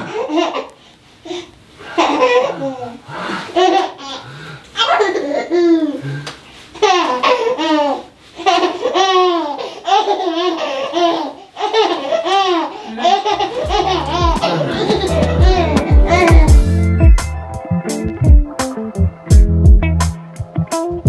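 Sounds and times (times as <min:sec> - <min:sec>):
baby laughing: 0:00.0 - 0:00.7, 0:01.3 - 0:06.0, 0:06.8 - 0:16.7
background music with bass: 0:13.6 - 0:21.0.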